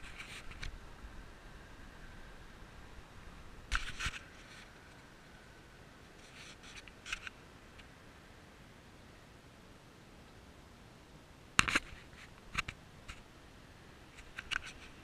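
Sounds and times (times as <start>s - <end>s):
camera handling scrapes and clicks: 0.0s - 0.7s, 3.7s - 4.7s, 14.2s - 15.0s.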